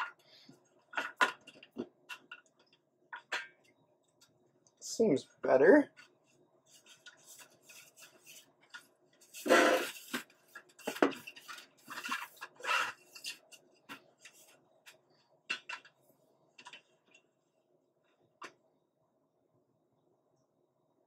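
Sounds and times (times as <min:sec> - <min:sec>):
hands scraping adhesive strips: 0:06.7 - 0:13.6.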